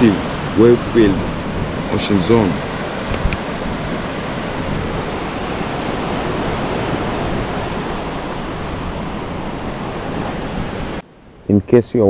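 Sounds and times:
ocean waves breaking on beach: 0.0 - 11.5.

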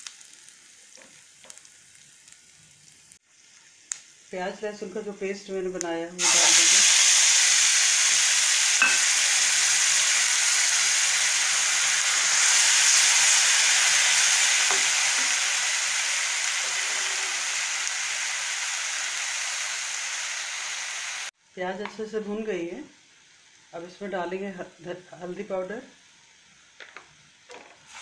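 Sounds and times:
paste sizzling in hot oil: 0.0 - 4.3, 6.2 - 21.4, 25.6 - 28.0.

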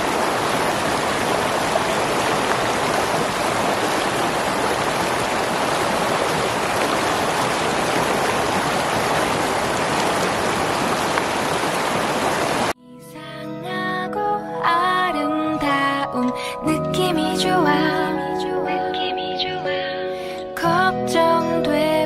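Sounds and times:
river water rushing: 0.0 - 12.8.

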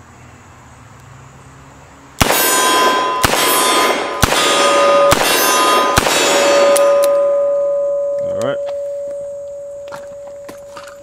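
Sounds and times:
steel targets clanging: 2.3 - 11.0.

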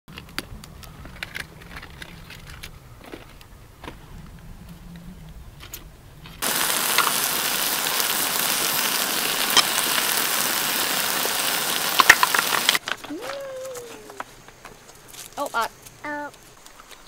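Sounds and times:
sharp crackles: 4.2 - 17.0
food sizzling in a wok: 6.4 - 12.8.

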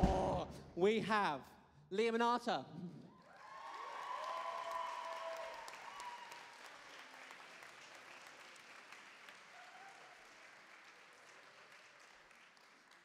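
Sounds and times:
audience applause: 3.1 - 13.0.

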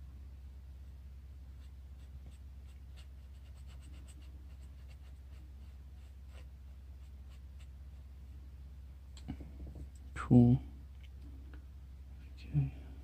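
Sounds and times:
low hum: 0.0 - 13.0
pen scratching on paper: 1.6 - 7.7.

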